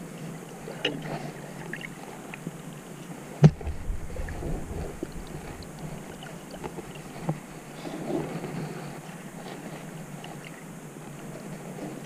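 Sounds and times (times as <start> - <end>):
muffled underwater ambience: 0.0 - 12.0
sharp knock: 3.4 - 5.7
low rumble: 3.4 - 7.8.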